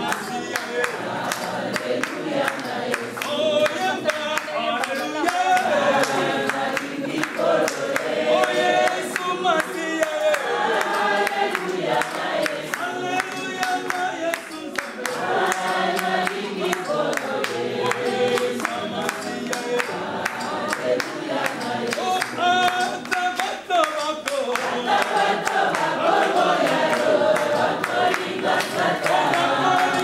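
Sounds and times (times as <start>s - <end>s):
group singing: 0.0s - 30.0s
hand-clapping to the beat: 0.0s - 30.0s
man singing lead: 8.3s - 10.8s, 12.7s - 15.6s.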